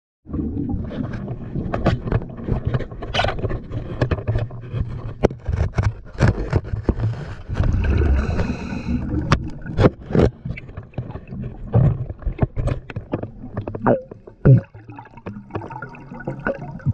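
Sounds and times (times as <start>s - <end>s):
underwater clicks and knocks: 0.7s - 16.9s
air bubbles rushing: 7.4s - 12.2s, 13.3s - 16.9s.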